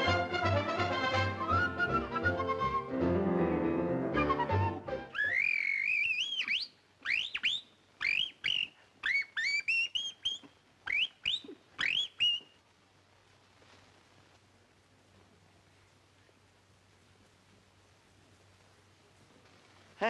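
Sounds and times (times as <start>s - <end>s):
whistled bird chirps: 5.1s - 12.6s.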